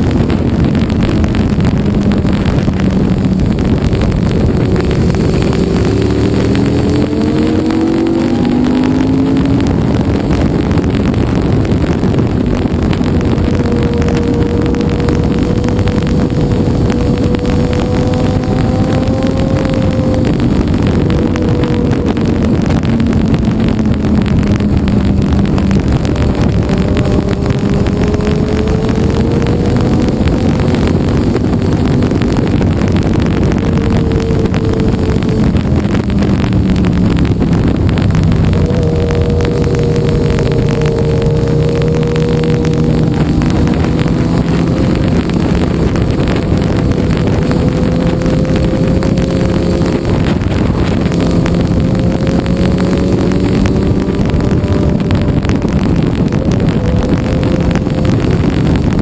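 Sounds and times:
motorcycle engine revving: 0.0s - 59.0s
wind rush on microphone: 0.0s - 59.0s.

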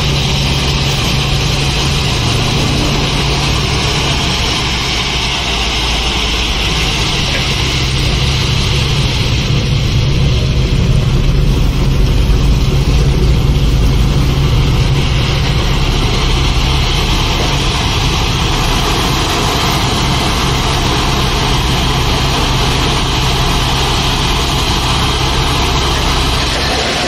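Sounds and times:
diesel truck engine running: 0.0s - 27.0s
hydraulic hoist raising: 0.0s - 27.0s.

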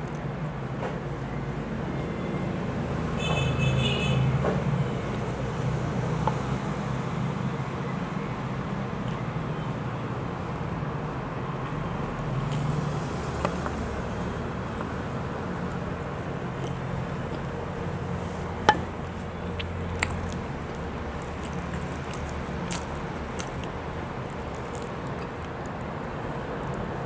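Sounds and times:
wet squishes of food eaten by hand: 15.6s - 27.0s.

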